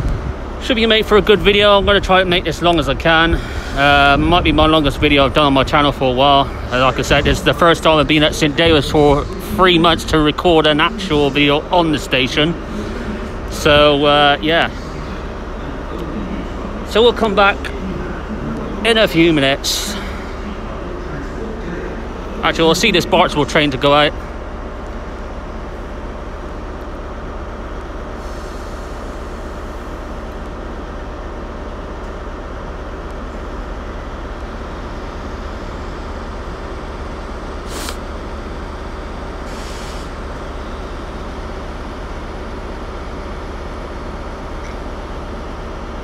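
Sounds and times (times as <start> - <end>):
diesel train engine hum: 0.0 - 46.0
brief sharp hiss: 37.7 - 38.1.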